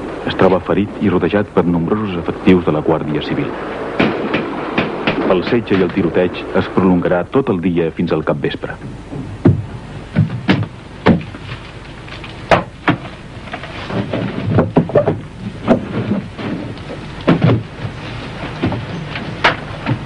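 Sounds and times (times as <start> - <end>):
gunshots: 3.6 - 6.8.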